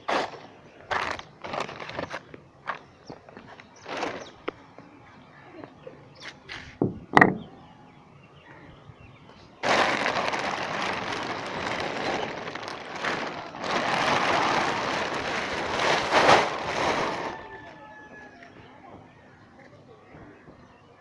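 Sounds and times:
plastic tarpaulin crackling: 0:00.0 - 0:04.5, 0:09.6 - 0:17.6.

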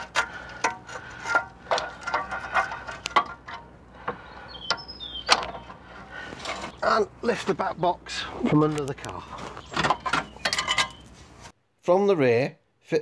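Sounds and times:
small metal clicks and knocks: 0:00.0 - 0:05.8, 0:08.6 - 0:11.1.

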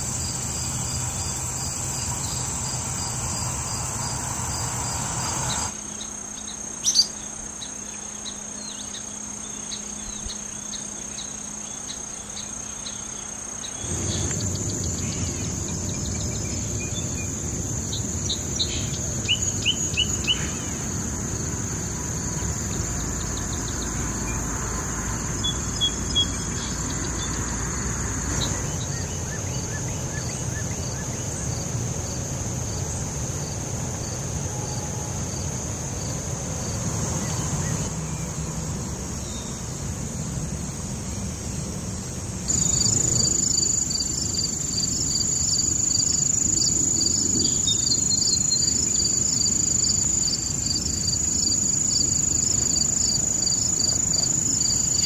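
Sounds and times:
crickets chirring: 0:00.0 - 0:55.0
bird chirps: 0:05.2 - 0:13.2, 0:42.5 - 0:53.9.

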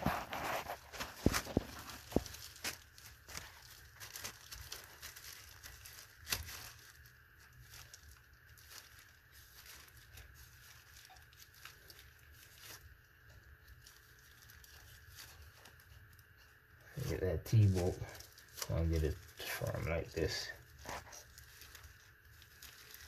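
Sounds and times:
plastic glove rustling: 0:00.0 - 0:23.0.

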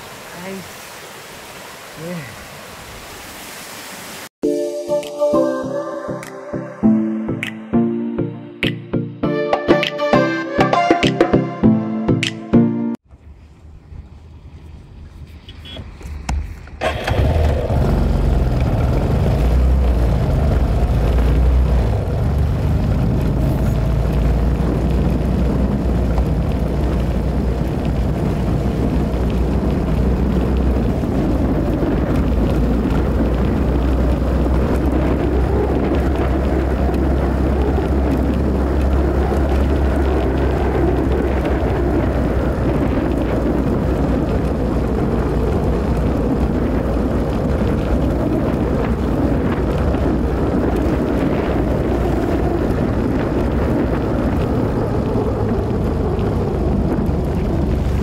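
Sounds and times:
wind rushing over microphone: 0:13.1 - 0:58.0
motorcycle engine running: 0:16.8 - 0:27.7.

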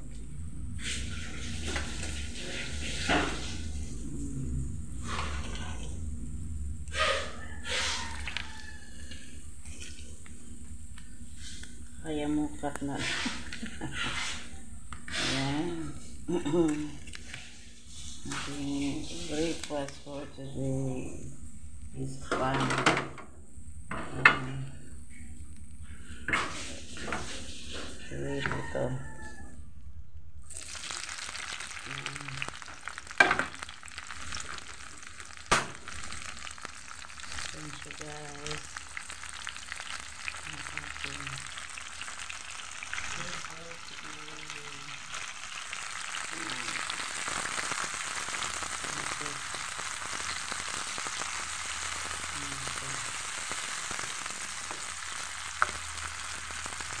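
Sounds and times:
vegetables sizzling in oil: 0:00.0 - 0:28.6, 0:30.5 - 0:57.0.

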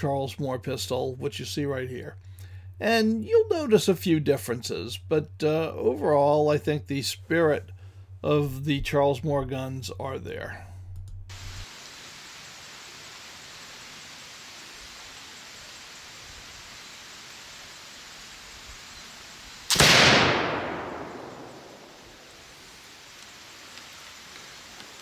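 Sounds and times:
flintlock pistol shot: 0:19.7 - 0:22.3.

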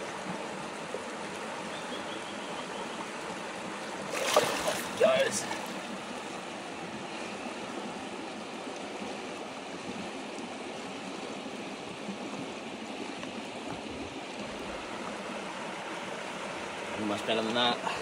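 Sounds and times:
water rushing over rocks: 0:03.0 - 0:06.8.

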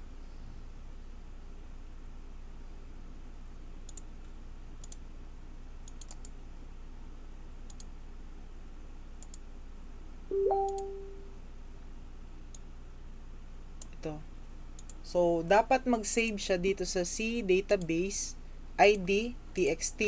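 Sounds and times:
mouse button clicks: 0:10.3 - 0:11.2
short hummed tone: 0:10.3 - 0:11.4.

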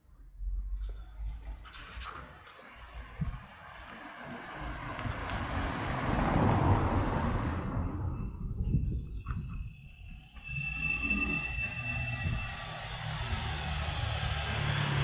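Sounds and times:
small birds chirping: 0:00.0 - 0:04.3, 0:07.2 - 0:13.5
car driving past: 0:02.8 - 0:08.2, 0:10.4 - 0:15.0
vehicle engine high tone: 0:07.6 - 0:15.0.

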